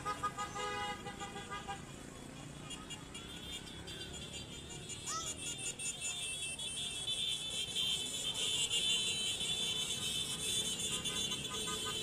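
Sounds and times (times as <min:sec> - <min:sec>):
horn beeping: 0:05.7 - 0:12.0
motorcycles riding past: 0:06.9 - 0:12.0.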